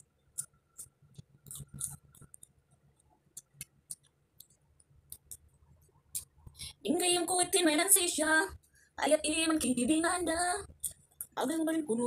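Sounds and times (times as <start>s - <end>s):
crisp chewing clicks and crackles: 0.0s - 6.6s, 10.7s - 11.4s.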